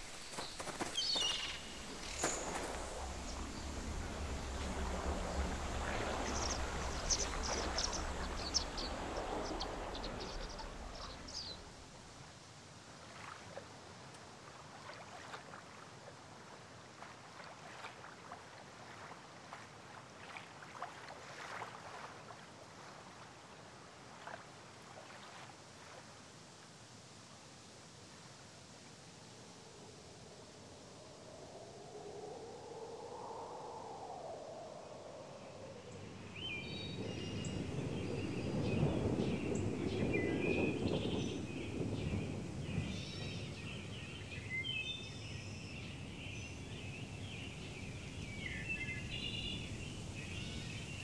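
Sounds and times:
water lapping: 0.0 - 12.3, 12.9 - 26.2
bird chirps: 0.3 - 3.8
small boat rumbling through water: 1.6 - 12.0.

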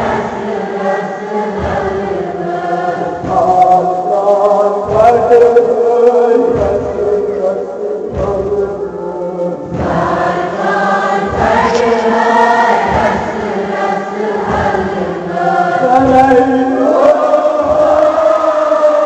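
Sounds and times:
chorus chanting a lament: 0.0 - 19.0
low thumps: 4.8 - 16.6.

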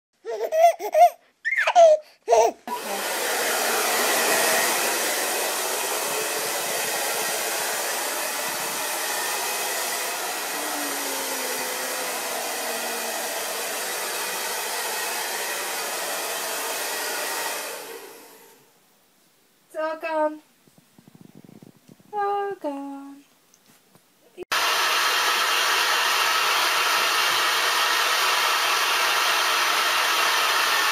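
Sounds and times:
hair dryer blowing: 2.7 - 18.8, 24.5 - 30.9.

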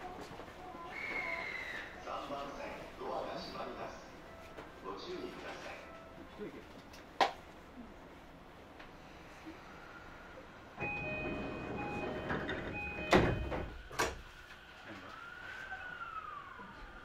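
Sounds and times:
train door beeping chime: 10.8 - 13.8
sliding doors shutting with thud: 10.8 - 14.3.

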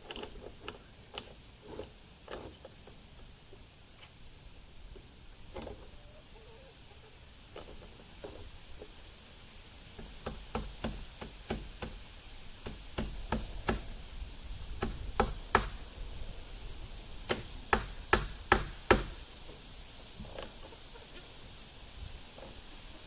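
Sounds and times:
hammer driving nails into wood: 10.0 - 12.0, 14.8 - 15.8, 17.3 - 19.2.

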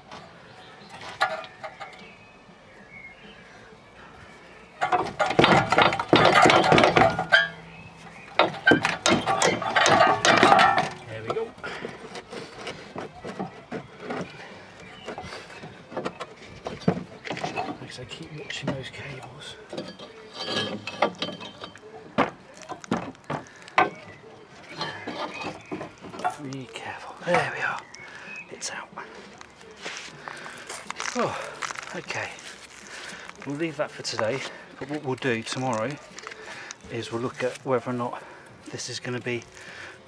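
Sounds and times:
sharp metallic knocks and clicks: 4.8 - 7.6, 8.3 - 11.4
metallic clinking and rattling: 4.8 - 7.7, 8.3 - 15.3, 15.9 - 28.0.

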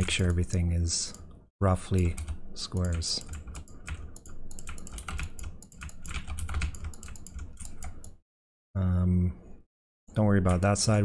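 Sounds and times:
computer keyboard clicking: 2.0 - 8.2.

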